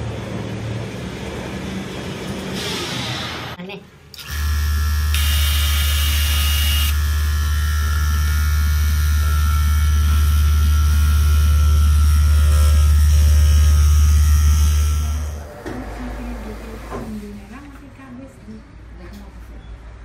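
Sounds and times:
cloth cutting machine humming: 4.1 - 17.0.

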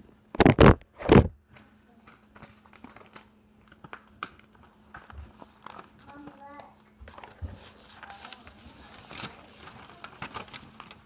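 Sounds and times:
handling noise on phone microphone: 0.3 - 1.4.

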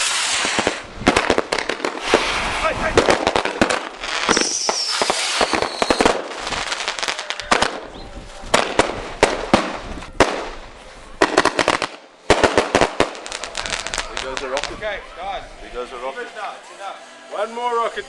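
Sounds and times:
fireworks bangs: 0.0 - 10.6, 11.2 - 14.8
fireworks crackling: 0.0 - 16.6.

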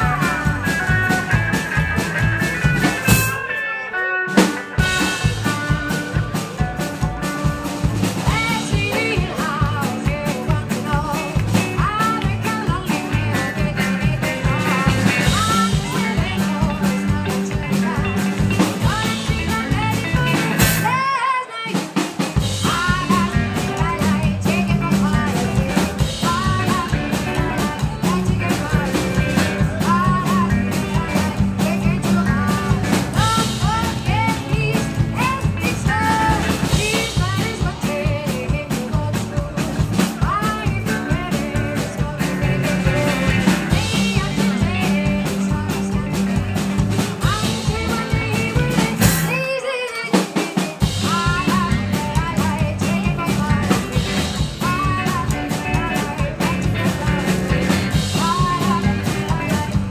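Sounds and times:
woman singing: 0.0 - 3.4, 4.8 - 59.9
rock and roll band playing: 0.0 - 59.9.

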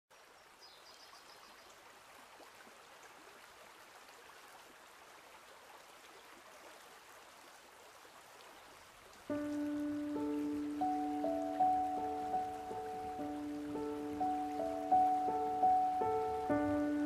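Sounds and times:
faint hiss: 8.8 - 17.0.

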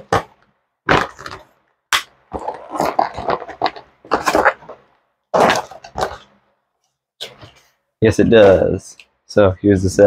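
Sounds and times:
packaging crinkling and rustling: 0.0 - 1.6, 2.3 - 6.4
sharp plastic crackle: 0.0 - 6.3.

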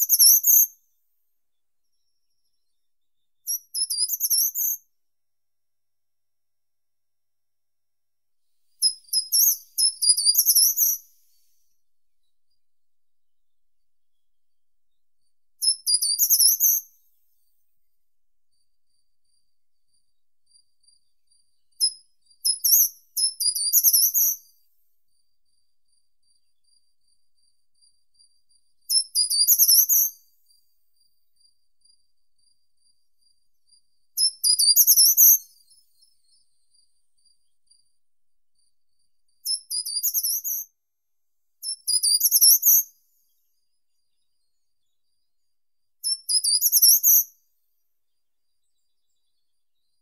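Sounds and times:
bird singing high-pitched phrases: 1.9 - 4.8, 8.8 - 11.7, 15.6 - 17.0, 21.7 - 24.6, 34.2 - 36.8, 39.4 - 40.7, 41.6 - 43.0, 46.0 - 47.3.

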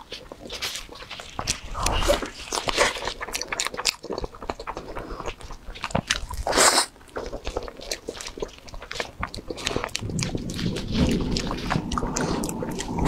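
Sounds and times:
chewing soft cake: 0.0 - 13.0
rustle: 9.4 - 13.0.

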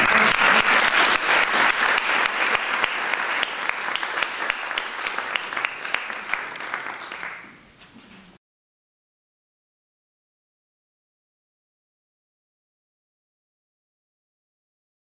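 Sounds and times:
audience applauding: 0.0 - 7.8.

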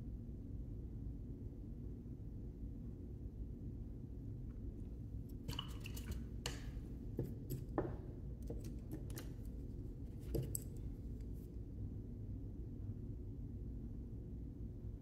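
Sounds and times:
low steady hum: 0.0 - 15.0
paint supplies clicking on tabletop: 5.5 - 9.5, 10.2 - 10.8.

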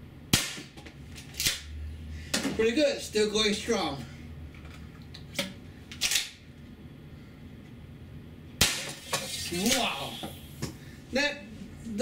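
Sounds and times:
loud sharp gunshot: 0.3 - 0.7, 8.6 - 9.1.

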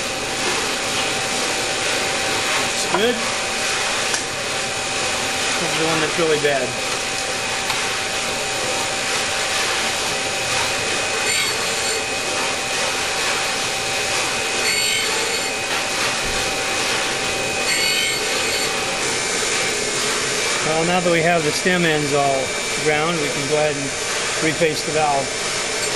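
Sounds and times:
grinding wheel whining: 0.0 - 25.9
metal rasping on grinding stone: 9.0 - 20.8.

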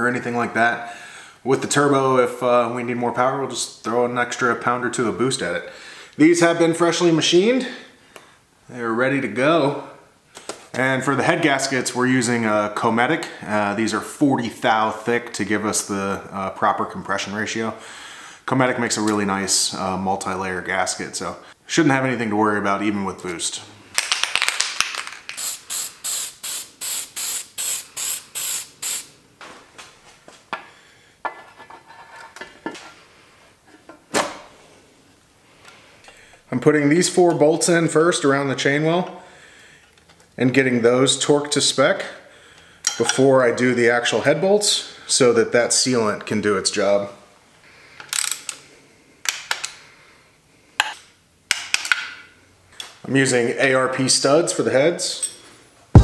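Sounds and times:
aerosol spray hissing bursts: 25.4 - 29.1
metal parts clicking and handling: 48.0 - 48.6.

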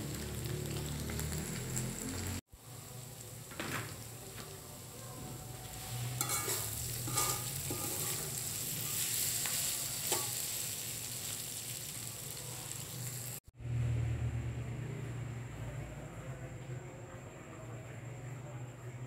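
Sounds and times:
food sizzling in a wok: 0.0 - 13.5
spatula scraping a metal pan: 5.8 - 10.6.

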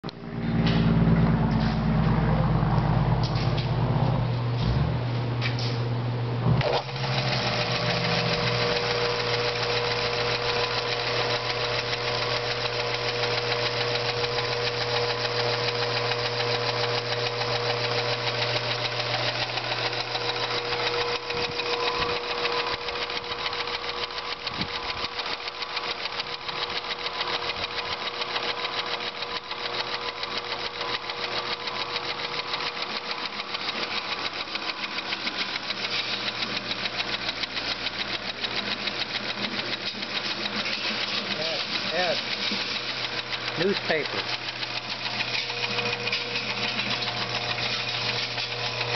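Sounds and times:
low hum: 0.0 - 9.6
power hammer running: 0.0 - 48.9
fast even ticking: 6.9 - 48.9.

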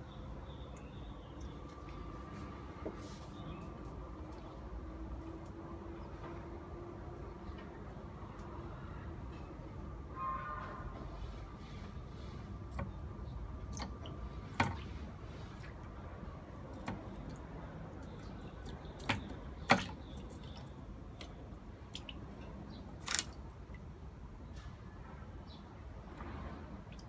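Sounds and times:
water sloshing in plastic tub: 12.7 - 23.9.

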